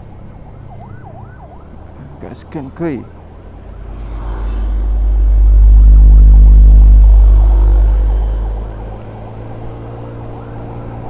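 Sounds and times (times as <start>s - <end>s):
motorcycle engine hum: 3.0s - 11.0s
wind rumble on microphone: 5.0s - 9.9s.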